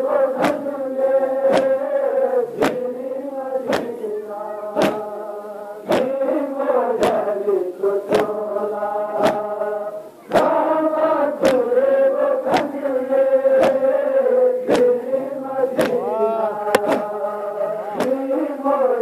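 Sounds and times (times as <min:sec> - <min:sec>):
men chanting in unison: 0:00.0 - 0:19.0
chest slapping: 0:16.7 - 0:17.1.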